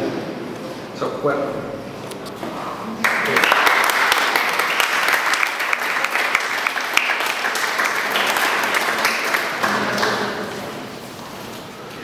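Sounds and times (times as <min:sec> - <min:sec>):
audience applauding: 0:03.0 - 0:10.8.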